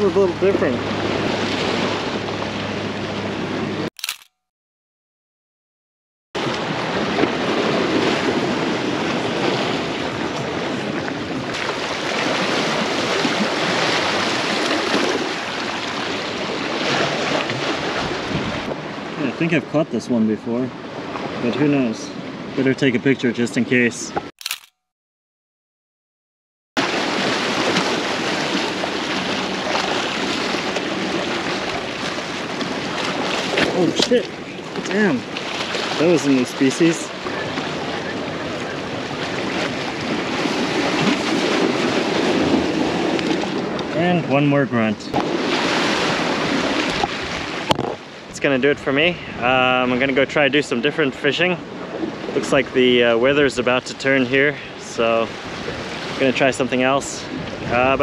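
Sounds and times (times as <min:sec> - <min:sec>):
wind on microphone: 0:06.4 - 0:19.1, 0:57.2 - 0:58.0
surf washing against rocks: 0:06.4 - 0:19.5, 0:26.8 - 0:44.4, 0:45.1 - 0:49.1
small waves splashing against rocks: 0:26.8 - 0:43.8.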